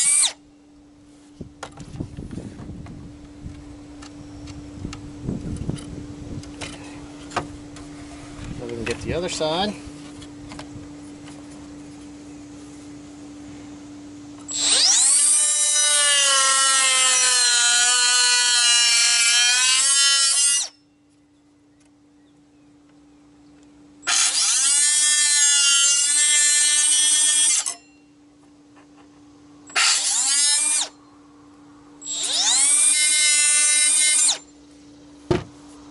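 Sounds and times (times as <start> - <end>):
cut-off tool whining: 0.0 - 0.4, 14.4 - 20.9, 24.0 - 28.0, 29.7 - 31.0, 32.0 - 34.5.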